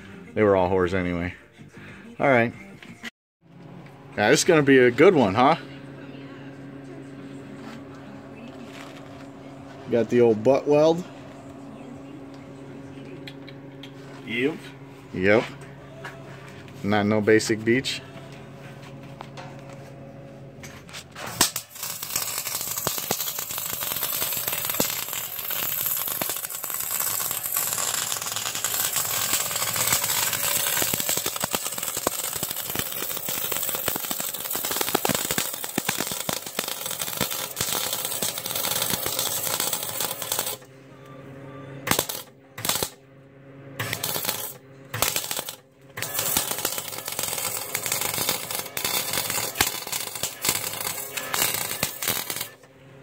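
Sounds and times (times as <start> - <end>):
welding arc crackling: 21.3 - 40.6, 41.9 - 43.0, 43.8 - 52.6.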